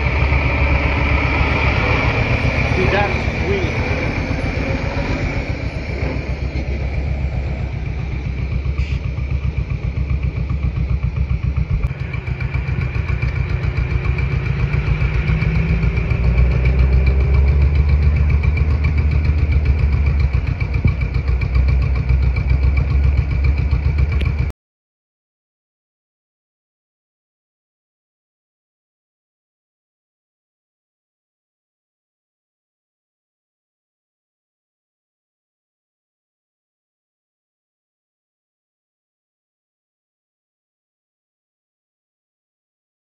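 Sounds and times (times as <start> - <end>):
diesel truck engine idling: 0.0 - 24.5.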